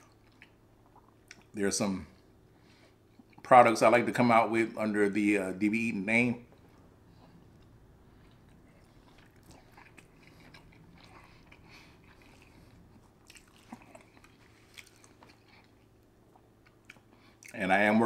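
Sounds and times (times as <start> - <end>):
faint chewing mouth clicks: 0.0 - 1.5, 6.5 - 17.6.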